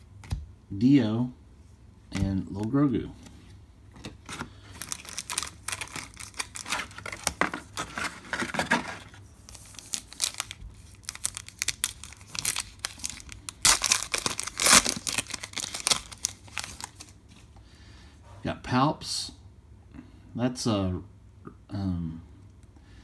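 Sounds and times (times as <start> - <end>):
foil pack crinkling: 4.1 - 17.2.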